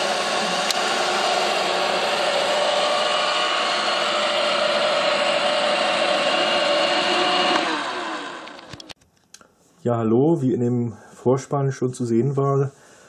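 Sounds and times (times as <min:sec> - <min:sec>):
robot vacuum motor whine: 0:00.0 - 0:08.9
clicks: 0:08.4 - 0:09.5.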